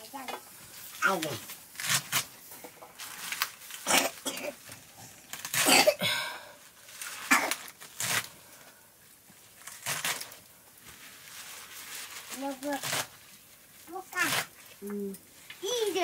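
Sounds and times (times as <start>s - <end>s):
knife cutting crisp greens on wood: 1.8s - 2.3s, 7.4s - 8.3s, 9.6s - 10.4s, 12.7s - 13.1s, 14.2s - 14.6s.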